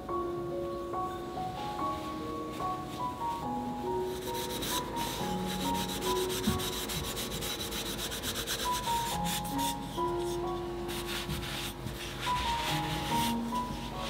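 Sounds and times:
slow background music: 0:00.0 - 0:14.0
cloth rubbing on wooden spoons: 0:04.1 - 0:14.0.

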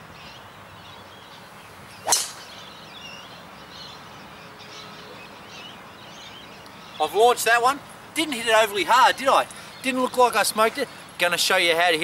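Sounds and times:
golf driver striking ball: 0:02.0 - 0:02.7.

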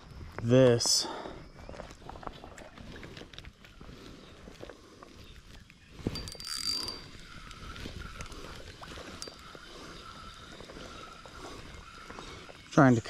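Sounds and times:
fishing reel whirring: 0:05.8 - 0:13.0.

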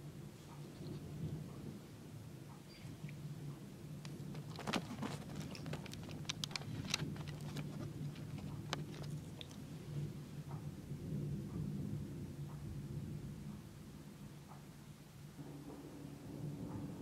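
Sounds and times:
low steady hum: 0:00.0 - 0:17.0
sharp clicks: 0:04.0 - 0:09.6.

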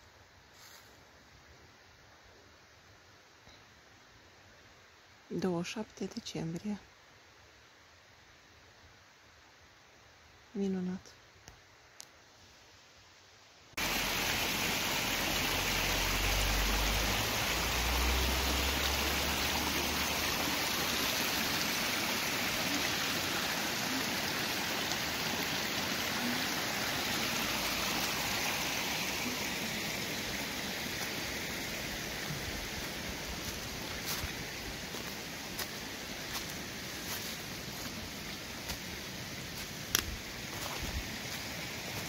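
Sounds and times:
stream rushing over rocks: 0:13.7 - 0:42.0.

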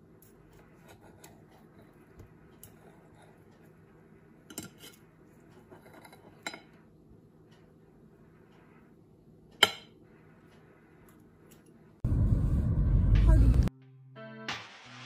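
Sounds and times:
cutlery clinking on ceramic plate: 0:05.6 - 0:06.8.

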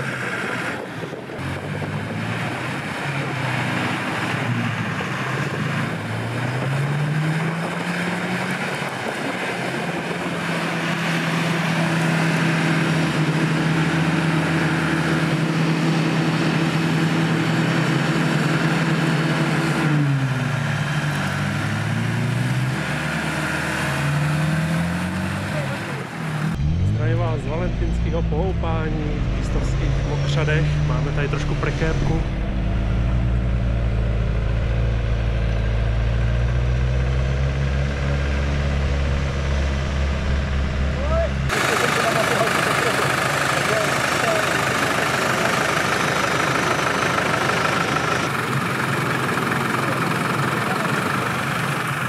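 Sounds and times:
engine revving: 0:00.0 - 0:52.0
steady rushing noise: 0:26.1 - 0:35.4.

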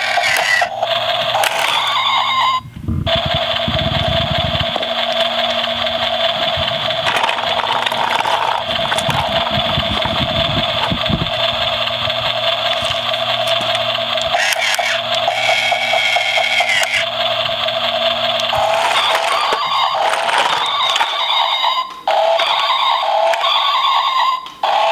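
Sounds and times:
electronic toy engine sound: 0:00.0 - 0:24.9
electronic toy sound: 0:00.0 - 0:24.9
plastic scraping on gravel: 0:01.4 - 0:02.0, 0:06.9 - 0:11.2, 0:12.7 - 0:13.8, 0:18.5 - 0:21.3.

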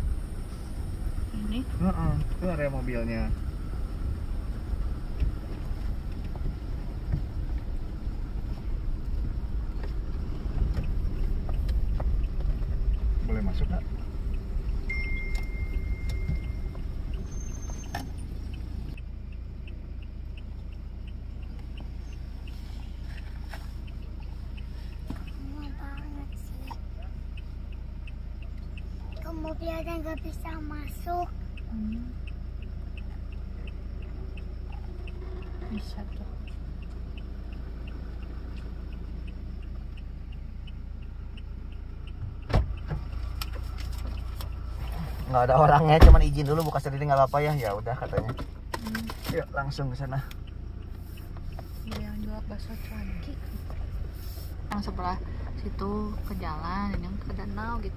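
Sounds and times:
vehicle engine rumbling: 0:00.0 - 0:57.9
faint ticking: 0:01.2 - 0:57.9
brief thin tone: 0:14.9 - 0:18.1.

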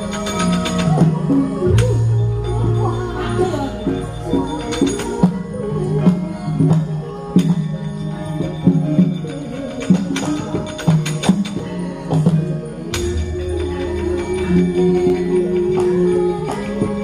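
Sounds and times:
clattering percussive strikes: 0:00.0 - 0:07.7, 0:08.4 - 0:17.0
gamelan ensemble playing: 0:00.0 - 0:17.0.

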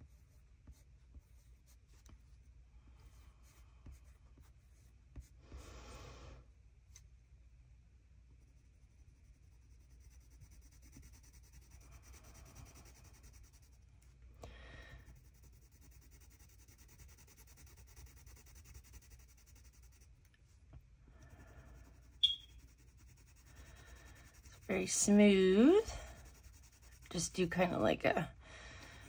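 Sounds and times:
pencil scratching on paper: 0:00.0 - 0:02.4, 0:03.0 - 0:05.4, 0:08.4 - 0:13.9, 0:15.0 - 0:20.2, 0:21.2 - 0:27.9.

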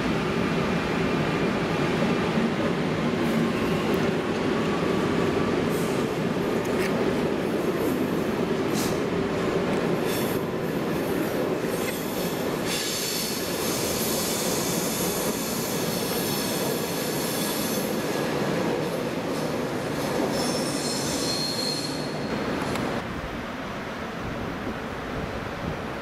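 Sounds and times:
train coaches rumbling on track: 0:00.0 - 0:26.0
train wheels squealing: 0:11.2 - 0:22.4.

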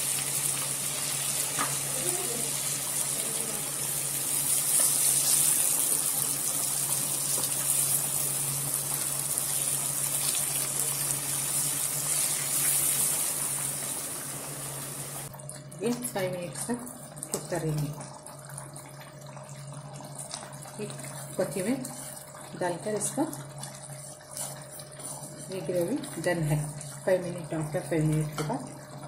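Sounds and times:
oil sizzling in a frying pan: 0:00.0 - 0:15.3.

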